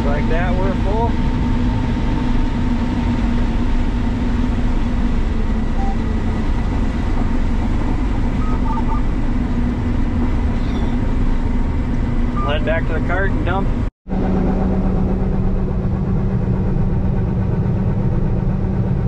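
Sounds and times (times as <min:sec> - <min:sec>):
combine harvester drone: 0:00.0 - 0:19.0
faint short beeps: 0:05.8 - 0:06.1, 0:08.4 - 0:09.1.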